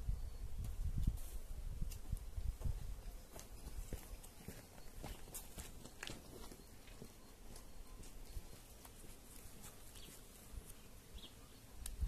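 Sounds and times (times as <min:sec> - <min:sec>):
horse hooves shifting: 0:02.5 - 0:10.9.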